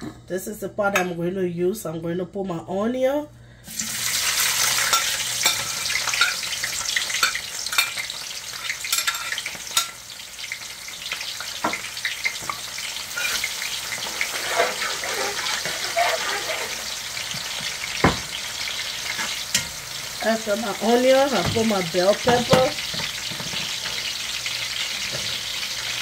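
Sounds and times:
onions sizzling in oil: 0:03.7 - 0:26.0
metal spatula scraping pot: 0:12.4 - 0:17.4.

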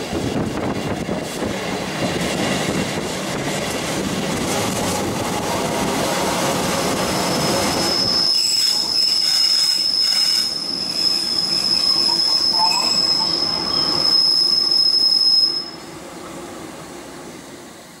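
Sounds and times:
train wheels rumbling on rails: 0:00.0 - 0:18.0
train brakes squealing: 0:07.0 - 0:15.9.

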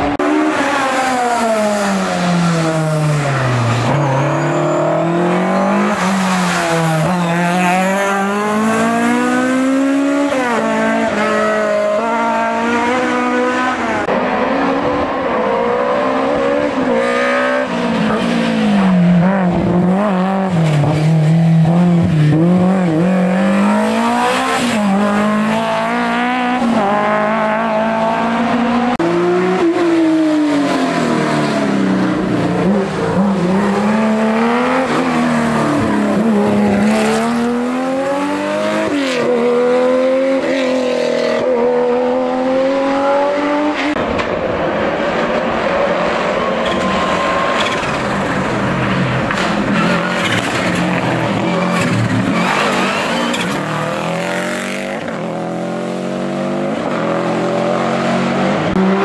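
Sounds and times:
rally car engines revving: 0:00.0 - 0:59.0.

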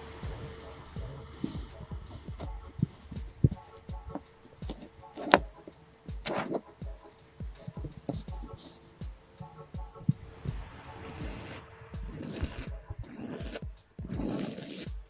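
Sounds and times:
soft low thumps: 0:00.0 - 0:15.0
sand crackle: 0:10.2 - 0:14.9
sand crunching under fingers: 0:10.6 - 0:13.6.

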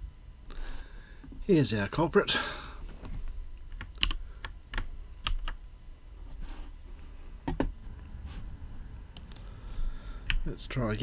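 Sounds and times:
computer keyboard keystrokes: 0:03.7 - 0:05.6.

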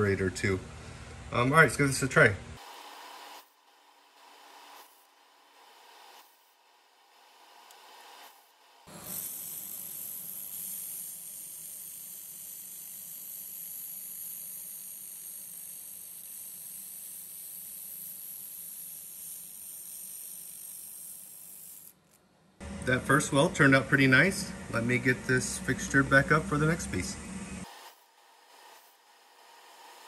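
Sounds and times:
laser welder hiss: 0:02.6 - 0:22.0.

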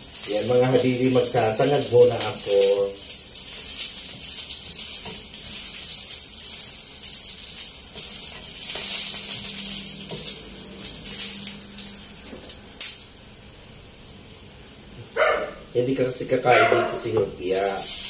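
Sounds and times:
oil sizzling in a frying pan: 0:00.0 - 0:16.3, 0:17.2 - 0:18.0
spatula scraping and tapping pan: 0:03.6 - 0:06.0, 0:07.9 - 0:10.4.

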